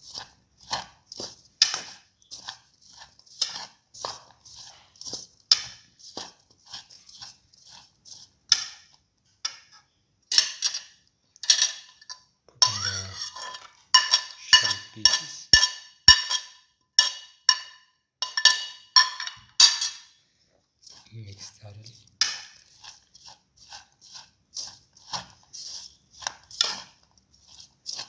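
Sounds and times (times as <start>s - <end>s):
spoon clinking against bowl: 10.3s - 20.1s.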